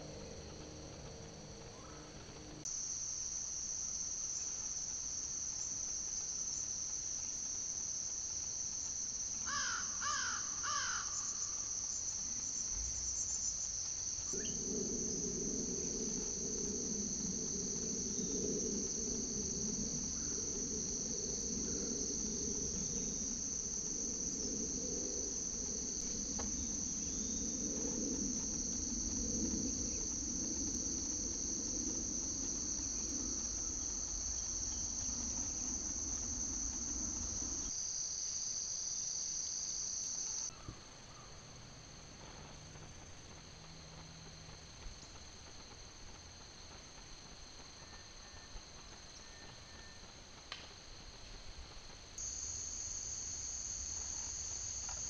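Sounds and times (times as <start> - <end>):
low steady rumble: 0.0 - 2.8, 11.2 - 37.8
high-pitched insect chorus: 0.0 - 55.0
crow cawing: 9.5 - 11.2.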